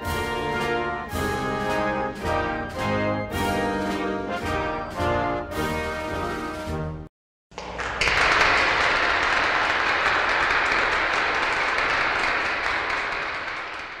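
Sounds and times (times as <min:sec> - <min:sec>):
applause: 0:07.5 - 0:14.0.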